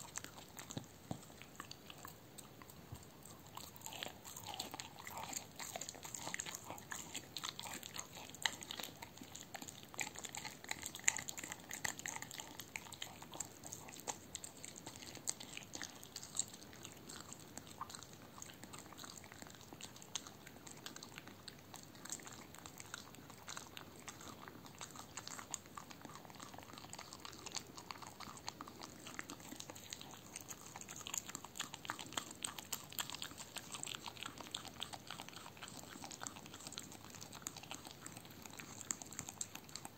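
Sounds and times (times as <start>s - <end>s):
dog biting: 0.0s - 39.9s
dog chewing and licking: 0.0s - 39.9s.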